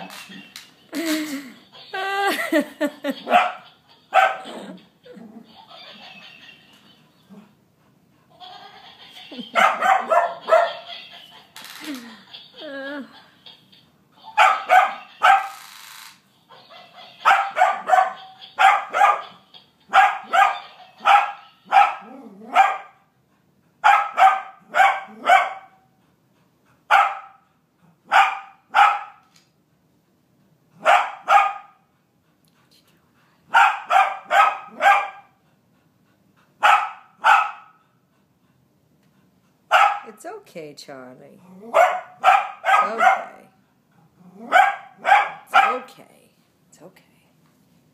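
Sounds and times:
small dog barking: 3.2s - 4.6s, 9.6s - 10.8s, 14.4s - 15.5s, 17.2s - 23.0s, 23.8s - 25.8s, 26.9s - 27.4s, 28.1s - 29.2s, 30.8s - 31.8s, 33.5s - 35.4s, 36.6s - 37.8s, 39.7s - 40.1s, 41.7s - 43.4s, 44.4s - 45.9s.

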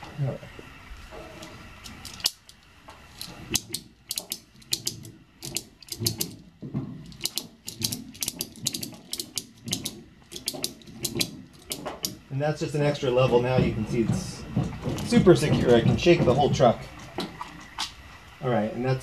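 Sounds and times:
ratchet strap clicking: 1.8s - 12.2s.

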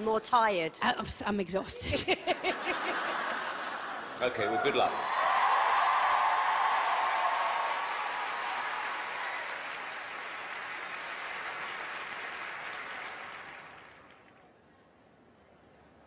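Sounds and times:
audience applauding: 4.1s - 14.4s.

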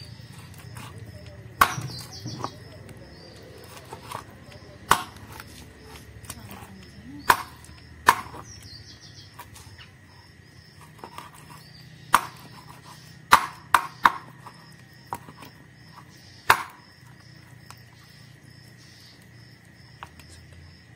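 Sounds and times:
knife chopping on wooden board: 0.3s - 8.7s, 10.7s - 17.0s.

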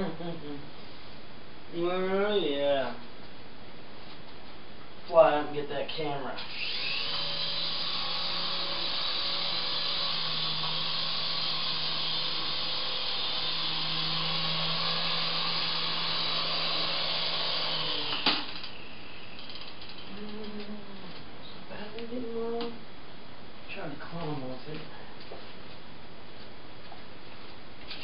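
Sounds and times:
toy helicopter rotors whirring: 6.5s - 18.8s.

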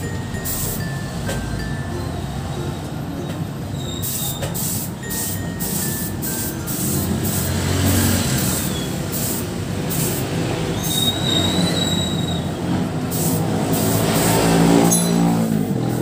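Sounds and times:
spray gun hissing: 4.0s - 10.5s, 13.0s - 14.6s.

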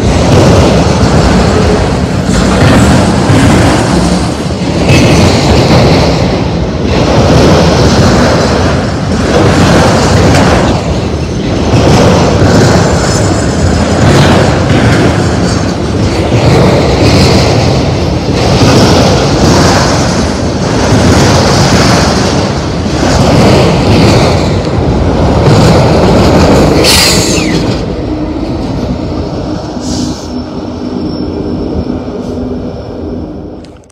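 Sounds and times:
steel wheels clattering on rails: 0.0s - 32.8s
high squeal: 29.8s - 33.4s.

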